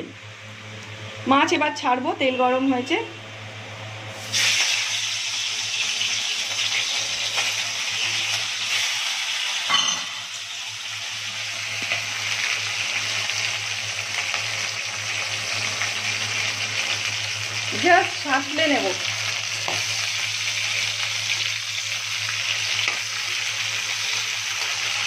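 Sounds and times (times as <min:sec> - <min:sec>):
low steady hum: 0:00.0 - 0:08.8
fish sizzling in hot oil: 0:04.1 - 0:25.0.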